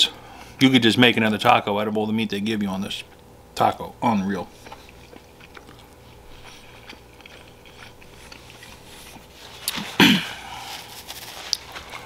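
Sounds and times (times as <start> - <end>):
man chewing food: 4.0 - 12.0
paper napkin rustling: 8.6 - 12.0.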